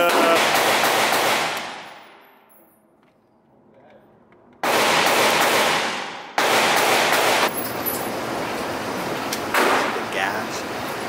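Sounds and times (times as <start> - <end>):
rapid gunfire bursts: 0.0 - 1.8, 4.6 - 7.5.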